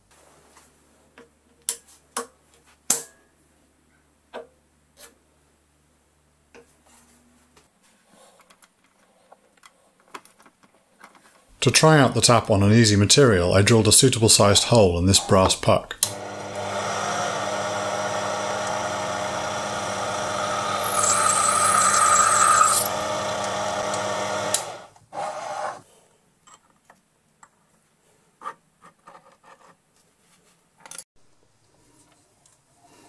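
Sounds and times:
mini lathe running: 0:16.1 - 0:25.8
drill squealing in brass: 0:19.9 - 0:23.9.

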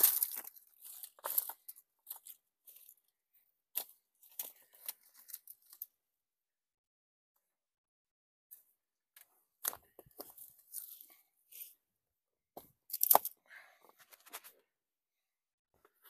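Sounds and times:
dry grass rustling and crackling: 0:00.0 - 0:03.0, 0:09.6 - 0:11.8.

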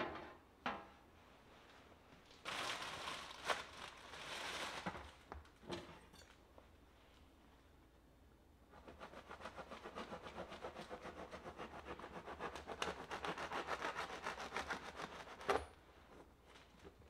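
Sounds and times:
knife sawing through crusty bread: 0:08.8 - 0:15.5.

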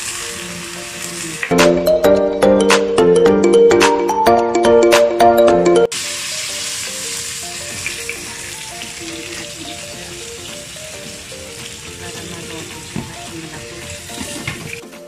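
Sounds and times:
fish sizzling in frying pan: 0:00.0 - 0:01.6, 0:05.9 - 0:14.8
background music: 0:00.0 - 0:15.0.

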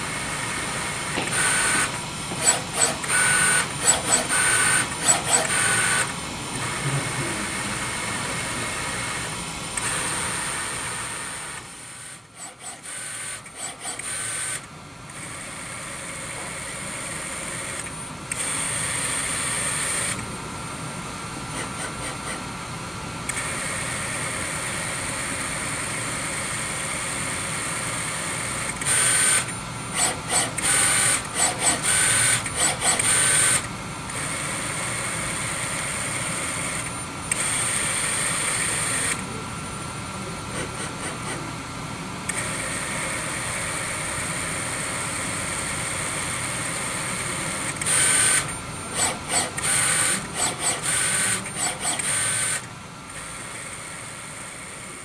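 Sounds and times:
servo motor high whine: 0:00.0 - 0:20.2, 0:42.3 - 0:55.0.

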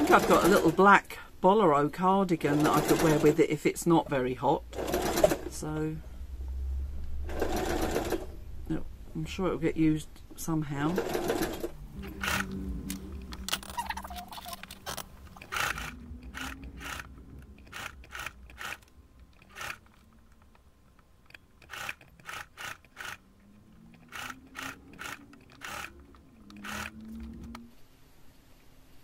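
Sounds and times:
sewing machine motor hum: 0:02.4 - 0:03.4, 0:04.7 - 0:05.7, 0:07.1 - 0:08.4, 0:10.8 - 0:27.7.

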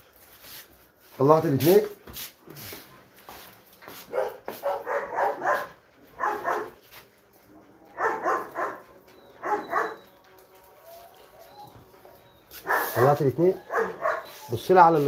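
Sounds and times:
dogs barking: 0:04.1 - 0:06.9, 0:07.5 - 0:14.7.

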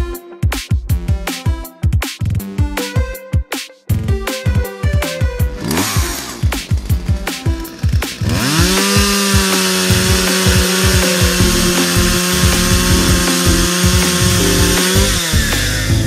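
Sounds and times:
background music with steady beat: 0:00.0 - 0:16.0
toy chainsaw electric buzz: 0:05.6 - 0:07.0, 0:07.7 - 0:16.0.

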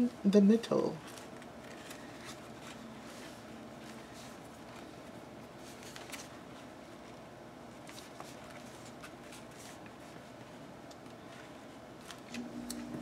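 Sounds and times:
paper rustling and tapping: 0:01.0 - 0:06.4, 0:07.8 - 0:10.2.

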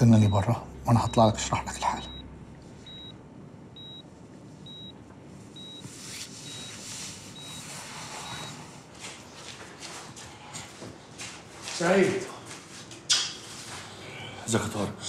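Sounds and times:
patient monitor beeping: 0:00.0 - 0:09.3.

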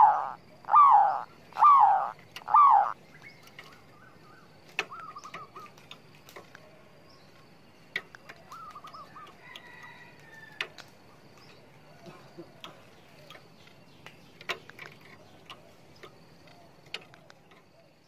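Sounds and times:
dove cooing: 0:00.0 - 0:03.0.

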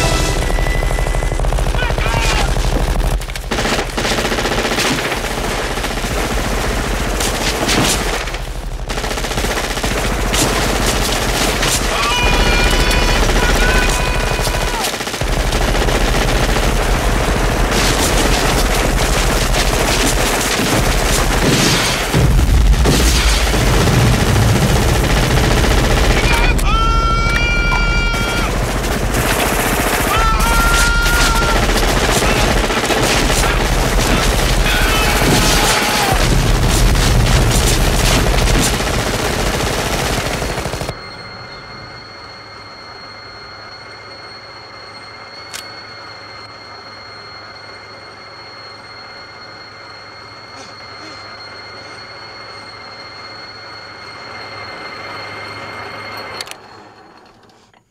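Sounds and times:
minigun firing with high whine: 0:00.0 - 0:41.2
automatic gunfire: 0:01.2 - 0:22.2, 0:28.4 - 0:40.9
automatic gunfire barrage: 0:28.2 - 0:40.9.

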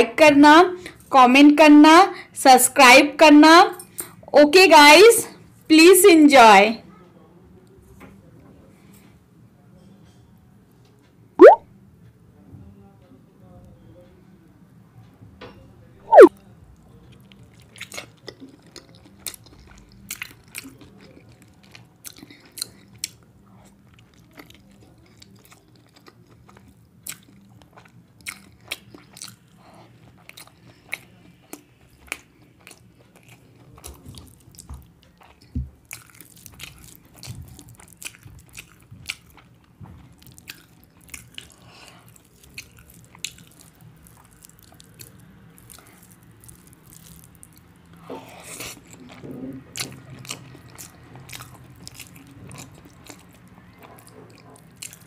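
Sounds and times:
chewing and wet mouth smacks: 0:17.2 - 0:55.0.

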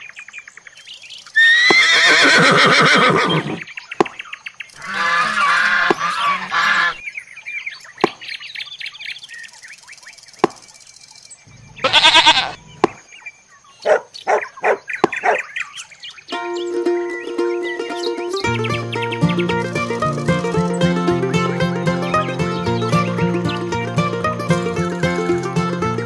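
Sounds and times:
goose honking: 0:04.8 - 0:07.0, 0:11.8 - 0:12.6
pulsing animal call: 0:04.8 - 0:07.0.

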